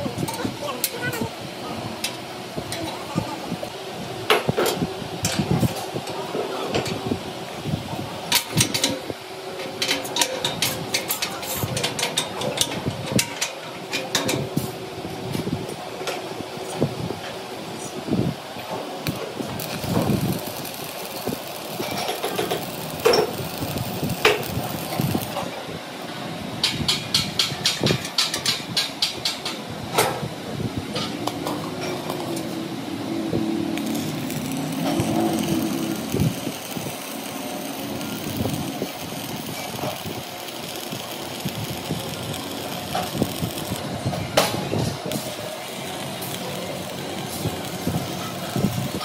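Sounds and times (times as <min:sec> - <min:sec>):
machine humming: 0:19.0 - 0:25.5, 0:31.4 - 0:49.0.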